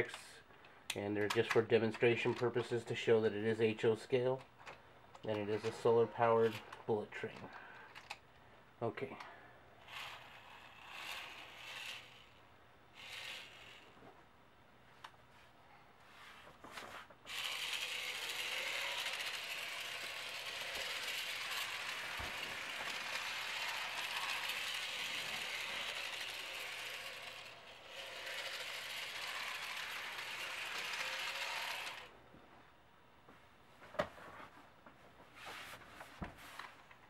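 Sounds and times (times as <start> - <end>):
model train motor whirring: 9.8 - 12.4, 13.0 - 14.0, 17.3 - 32.1.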